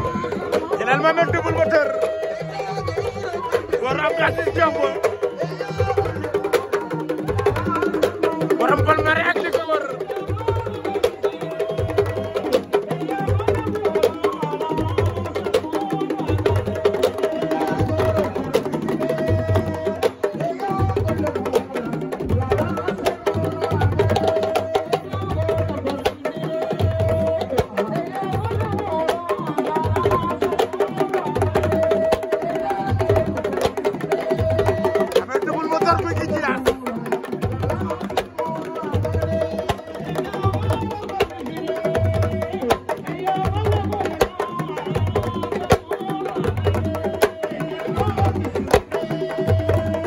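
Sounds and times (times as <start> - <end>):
drums playing fast rhythm: 0.0 - 50.0
voices singing or chanting: 0.0 - 50.0
talking drum struck with stick: 32.8 - 50.0.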